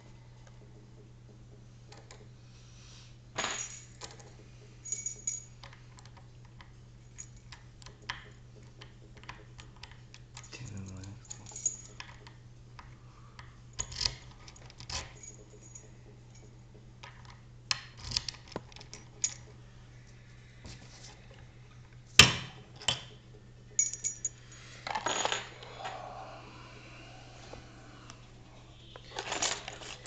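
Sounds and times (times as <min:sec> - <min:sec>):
lock picks clicking and rattling: 0:03.6 - 0:19.5.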